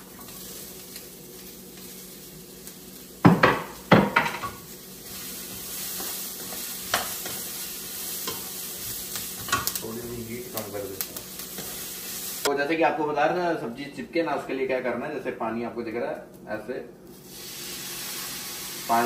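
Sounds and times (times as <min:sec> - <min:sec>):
vegetables sizzling in a pan: 0:00.0 - 0:12.5, 0:17.1 - 0:19.0.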